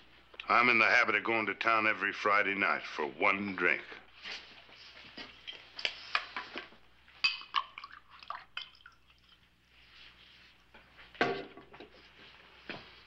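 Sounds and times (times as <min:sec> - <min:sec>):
drink being poured: 0:07.3 - 0:09.5.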